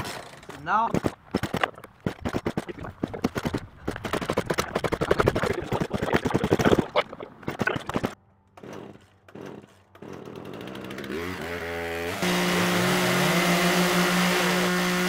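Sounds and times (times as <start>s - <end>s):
chainsaw engine running: 7.5s - 15.0s.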